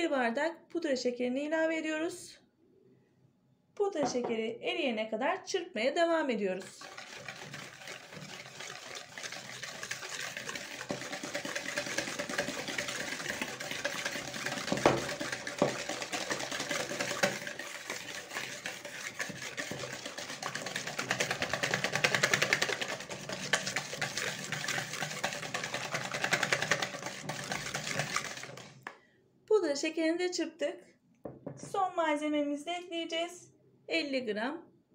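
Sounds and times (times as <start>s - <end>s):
whisk swishing in bowl: 6.6s - 28.9s
whisk knocking against bowl: 6.8s - 29.0s.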